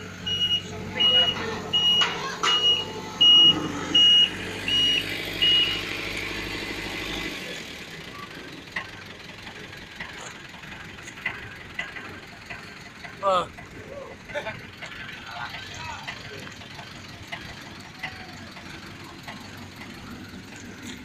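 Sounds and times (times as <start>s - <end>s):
diesel engine running: 0.0s - 21.0s
reversing alarm beeping: 0.2s - 6.5s.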